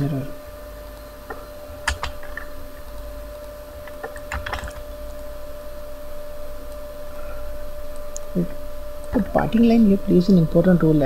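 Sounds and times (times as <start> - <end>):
background hum: 0.0 - 11.0
keyboard and mouse clicks: 1.3 - 3.0, 3.8 - 5.2.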